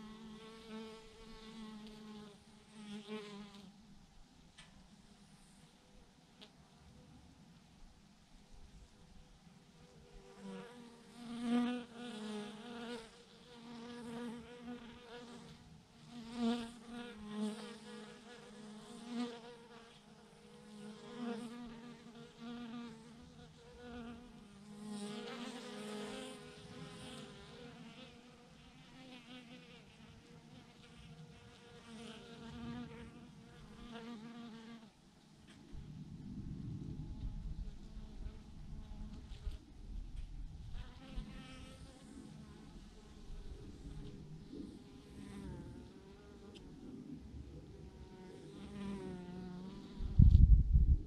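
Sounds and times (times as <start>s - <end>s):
low rumble: 35.5s - 40.8s, 50.0s - 51.0s.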